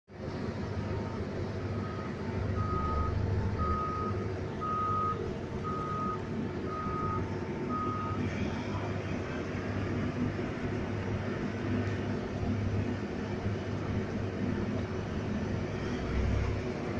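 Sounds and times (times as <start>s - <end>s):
low engine rumble: 0.1s - 16.9s
reversing alarm beeping: 1.0s - 8.3s.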